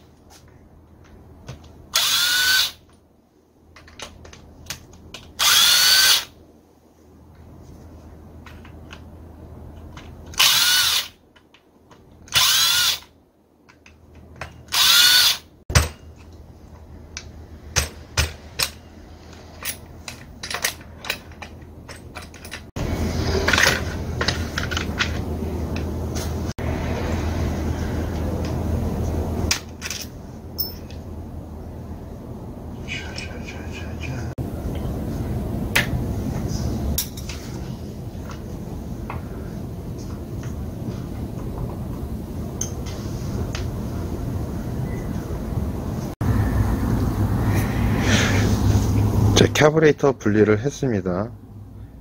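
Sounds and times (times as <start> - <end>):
cordless drill whining: 2.0 - 2.8, 5.4 - 6.3, 10.4 - 11.2, 12.3 - 13.1, 14.7 - 15.5
steady low rumble: 15.9 - 52.0.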